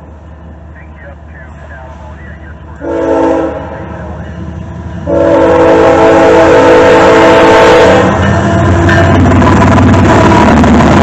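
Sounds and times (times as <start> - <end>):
locomotive air horn: 2.8 - 4.2, 5.0 - 8.8.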